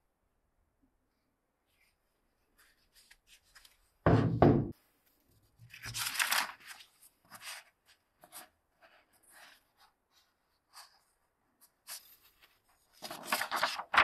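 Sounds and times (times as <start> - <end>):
book pages rustling: 1.7 - 4.0, 5.0 - 14.0
loud dull knock: 4.1 - 4.7.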